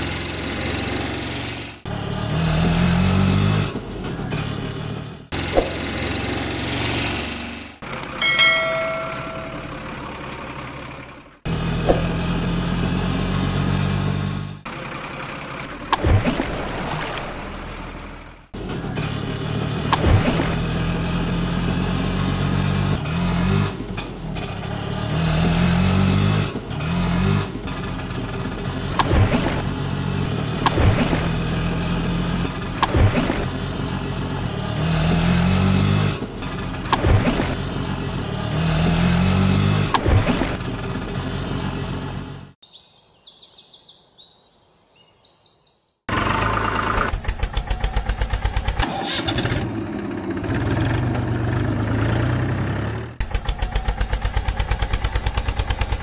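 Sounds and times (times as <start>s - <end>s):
vehicle engine revving: 0.0s - 9.4s, 10.3s - 16.1s, 17.3s - 42.6s, 46.1s - 56.0s
short descending chime: 8.2s - 9.9s.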